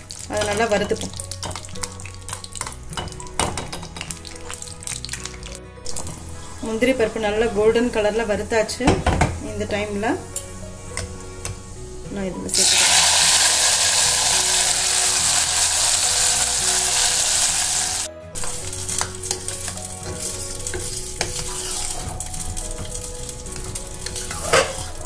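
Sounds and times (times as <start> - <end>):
hot ghee sizzling loudly: 0.0 - 8.8, 9.4 - 25.0
ladle scraping pot: 16.2 - 25.0.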